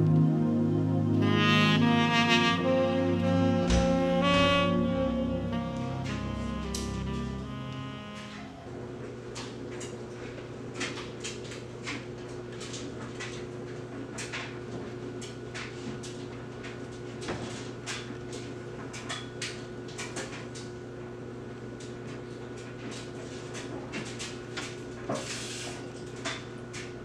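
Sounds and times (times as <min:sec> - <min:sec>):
steady low hum: 0:00.0 - 0:10.8
cupboard doors opening and closing: 0:03.6 - 0:04.6.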